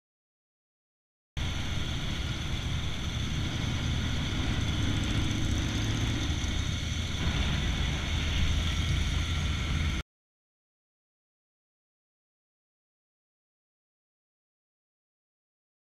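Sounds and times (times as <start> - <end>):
motorcycle engine running: 1.4 - 10.0
wind and road noise: 1.4 - 10.0.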